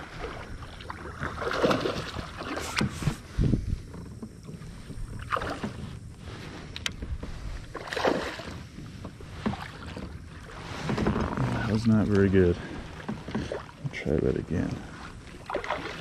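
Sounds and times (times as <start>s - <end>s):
water splashes: 0.0s - 3.3s, 4.6s - 6.4s, 7.6s - 16.0s
kayak knocks: 1.0s - 6.0s, 6.8s - 14.0s.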